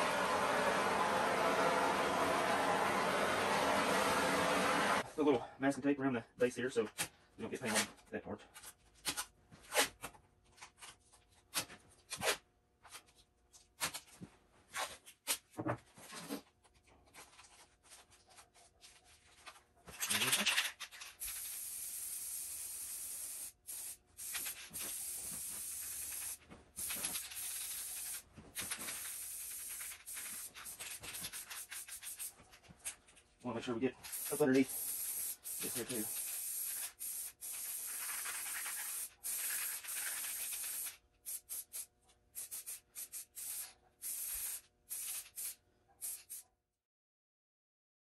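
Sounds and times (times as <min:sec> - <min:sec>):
spray-paint can hissing: 0:21.2 - 0:32.3, 0:34.0 - 0:46.4
masking tape unrolling: 0:24.2 - 0:33.0, 0:34.0 - 0:41.8.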